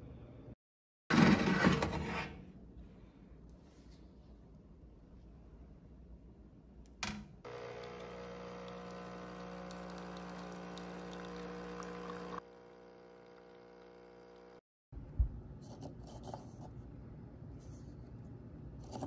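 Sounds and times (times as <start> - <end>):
coffee pouring into mug: 7.5 - 14.0
coffee machine pump humming: 7.5 - 14.6.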